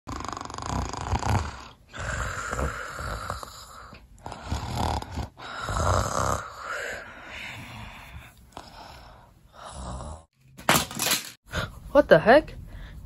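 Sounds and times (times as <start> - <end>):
person snoring: 0.1 - 10.3.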